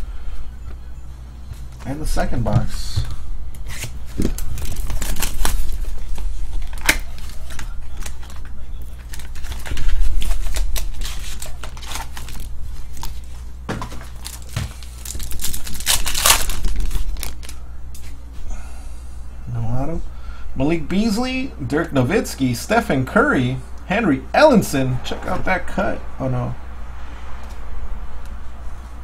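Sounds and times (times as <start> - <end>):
plastic wrapper tearing and crinkling: 3.7 - 13.2, 13.9 - 18.0.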